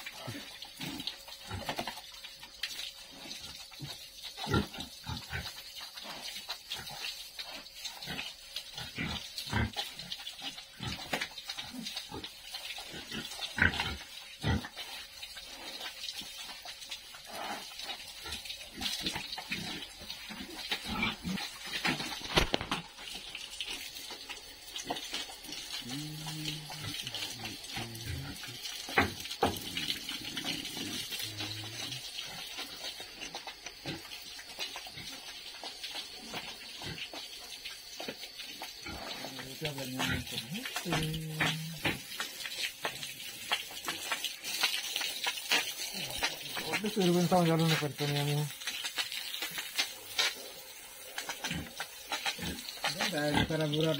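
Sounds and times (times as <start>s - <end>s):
pigs grunting: 0.0s - 1.8s, 3.1s - 14.9s, 17.2s - 22.8s, 25.4s - 34.1s, 38.6s - 42.2s, 45.5s - 47.1s, 50.2s - 53.9s
hose spraying water: 0.0s - 53.9s.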